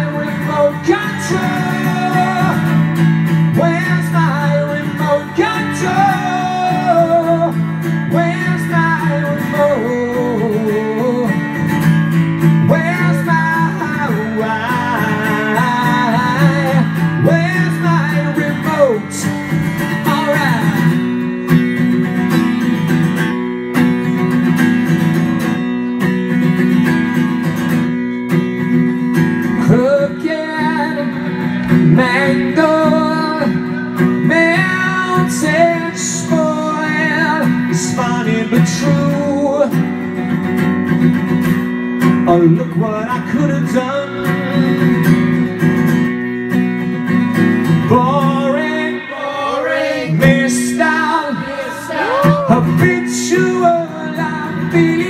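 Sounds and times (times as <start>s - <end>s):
man singing: 0.0s - 21.4s, 29.4s - 40.5s, 42.1s - 45.6s, 47.6s - 55.0s
strummed acoustic guitar: 0.0s - 55.0s.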